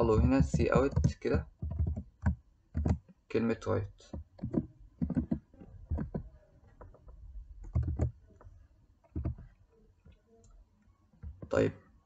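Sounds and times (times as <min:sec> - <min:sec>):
keyboard keystrokes: 0:00.1 - 0:03.1, 0:04.1 - 0:07.0, 0:07.6 - 0:08.2, 0:09.1 - 0:09.5.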